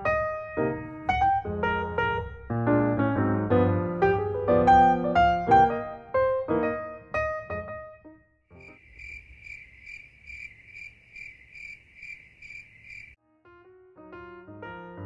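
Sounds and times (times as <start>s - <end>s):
piano music: 0.0s - 8.7s, 13.2s - 15.0s
cricket chirping: 8.6s - 13.2s.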